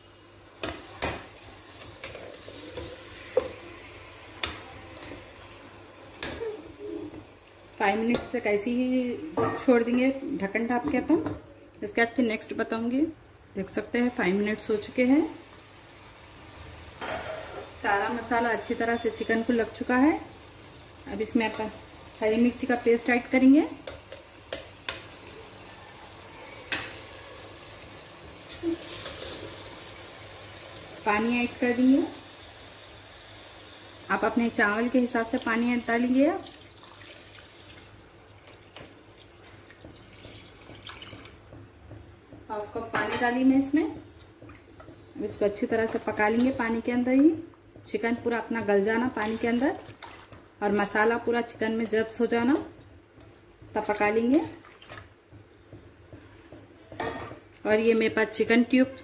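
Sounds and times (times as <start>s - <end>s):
faint sizzle of frying: 0.0s - 59.0s
spoon knocking and scraping pot: 39.7s - 50.4s.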